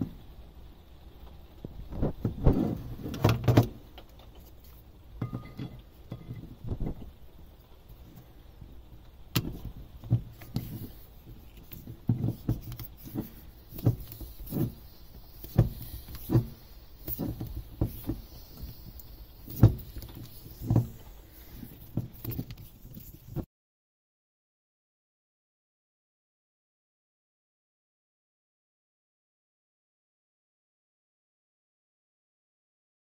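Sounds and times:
hand bike pump strokes: 0:09.4 - 0:23.5
dull knock of pump: 0:12.0 - 0:21.1.

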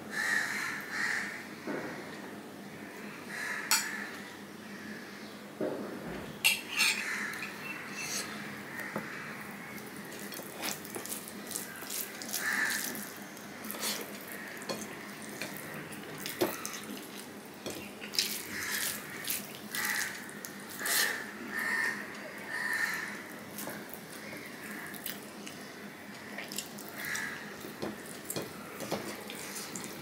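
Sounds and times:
fingers squishing rice and gravy: 0:09.6 - 0:30.0.

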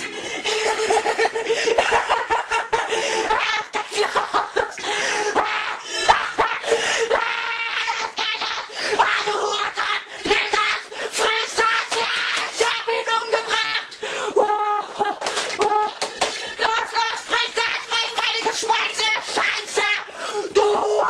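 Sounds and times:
cartoon wolf laughing: 0:00.0 - 0:10.9.

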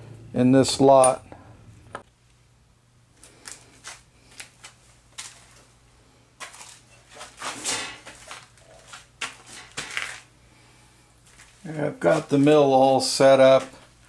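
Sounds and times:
faint steady hum: 0:00.0 - 0:14.0
metal parts and tools clinking: 0:01.0 - 0:01.3.

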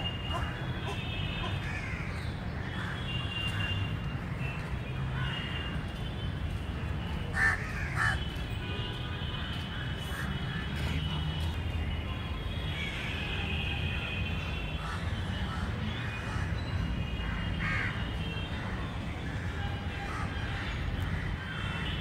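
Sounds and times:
crow cawing: 0:07.4 - 0:08.2, 0:17.6 - 0:17.9.

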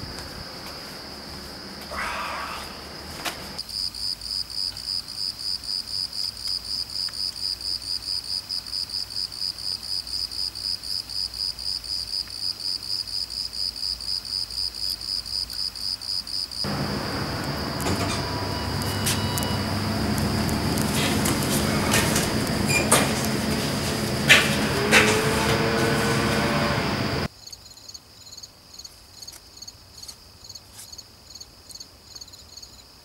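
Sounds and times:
crickets chirping: 0:00.0 - 0:33.0
clicks: 0:16.7 - 0:27.2
steady rushing noise: 0:16.7 - 0:27.3.

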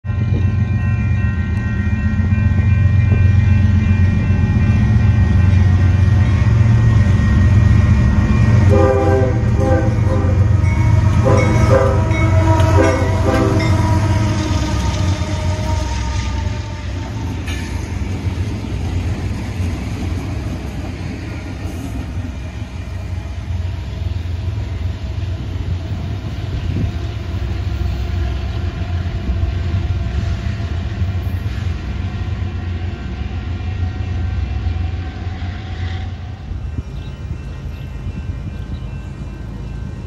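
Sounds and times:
diesel locomotive rumbling: 0:00.0 - 0:40.0
train horn blast: 0:08.5 - 0:17.5, 0:32.6 - 0:36.6.

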